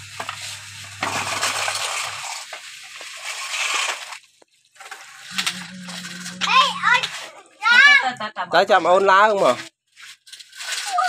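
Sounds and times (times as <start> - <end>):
sand scraping on plastic: 0.0 - 4.2.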